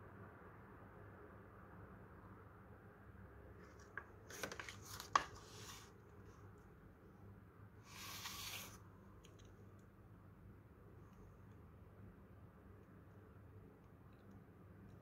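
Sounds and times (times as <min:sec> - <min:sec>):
plastic rustling: 0:03.6 - 0:05.7
plastic packaging crinkling: 0:03.8 - 0:05.4.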